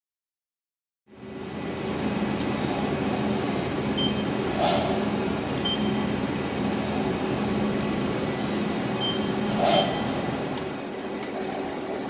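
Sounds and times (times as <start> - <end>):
mechanical hum: 1.1 - 12.0.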